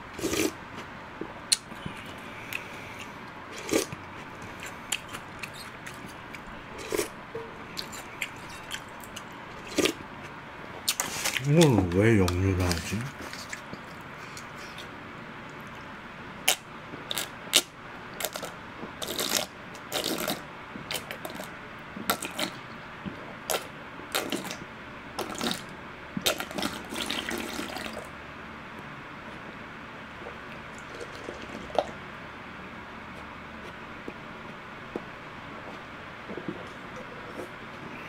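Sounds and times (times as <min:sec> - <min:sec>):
person gulping and slurping milk: 0:22.1 - 0:22.6, 0:23.5 - 0:24.6, 0:25.2 - 0:28.1, 0:30.2 - 0:32.0.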